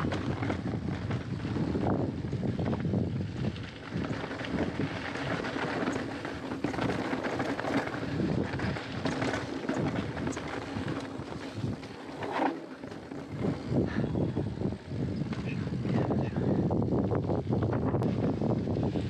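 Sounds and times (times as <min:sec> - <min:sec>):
bike rattling: 0:00.0 - 0:19.0
wind on microphone: 0:00.0 - 0:19.0
tyres crunching over gravel: 0:03.4 - 0:13.9.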